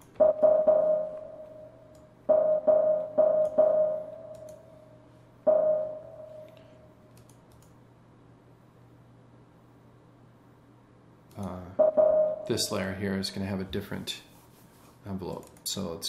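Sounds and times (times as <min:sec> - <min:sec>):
steady low hum: 0:00.0 - 0:16.0
synthesized instrument note: 0:00.1 - 0:04.8, 0:05.5 - 0:06.6, 0:11.8 - 0:12.8
faint mouse clicks: 0:06.5 - 0:07.8.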